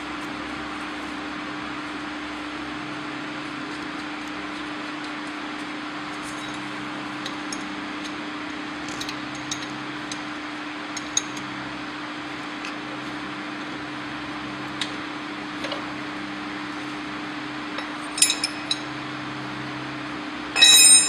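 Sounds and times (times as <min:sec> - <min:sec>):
background hum and hiss: 0:00.0 - 0:21.0
light metal clinks and taps: 0:17.8 - 0:18.8, 0:20.6 - 0:21.0.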